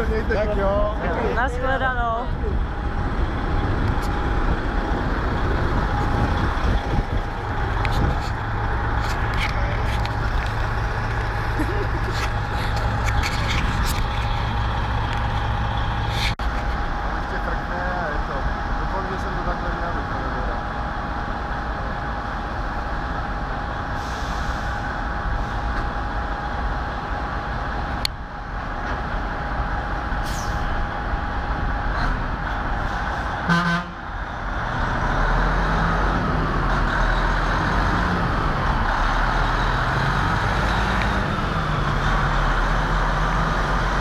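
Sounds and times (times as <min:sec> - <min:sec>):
truck diesel engine: 0:00.0 - 0:44.0
truck horn blast: 0:33.5 - 0:34.0.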